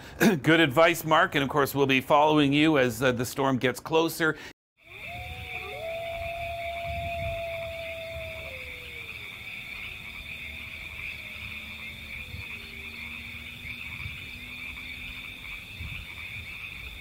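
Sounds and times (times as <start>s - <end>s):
frogs chorus: 4.8s - 17.0s
faint low gliding tone: 4.9s - 14.2s.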